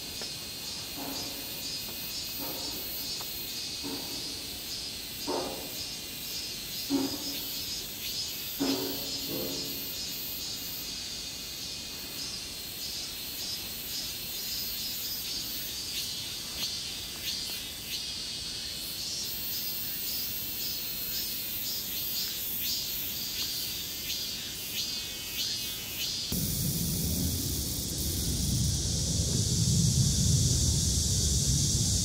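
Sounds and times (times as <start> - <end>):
crickets chirping: 0.0 - 32.0.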